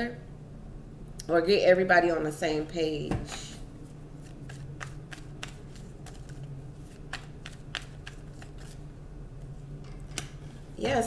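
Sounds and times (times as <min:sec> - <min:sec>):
steady low hum: 0:00.0 - 0:11.0
cards being shuffled: 0:04.2 - 0:08.9.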